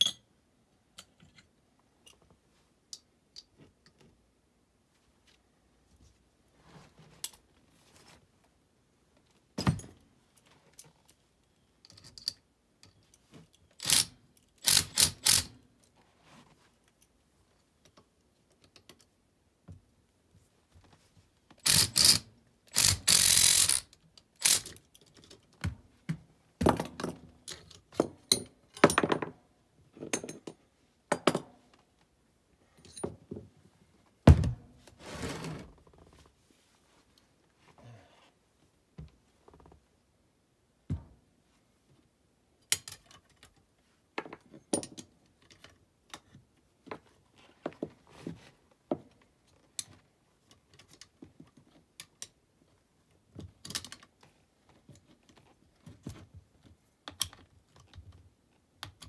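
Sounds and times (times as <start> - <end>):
heavy thunk: 34.3 - 34.6.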